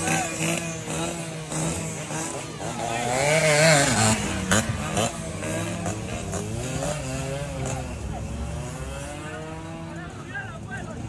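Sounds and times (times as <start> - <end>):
two-stroke motorcycle passing: 0.0 - 11.0.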